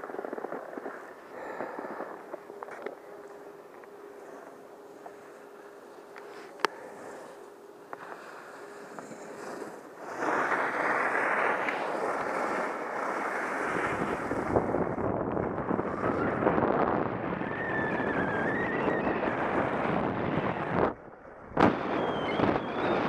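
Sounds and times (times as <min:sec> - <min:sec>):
skis scraping on snow: 0:00.0 - 0:02.1, 0:04.2 - 0:15.1
wind buffeting microphone: 0:13.2 - 0:23.0.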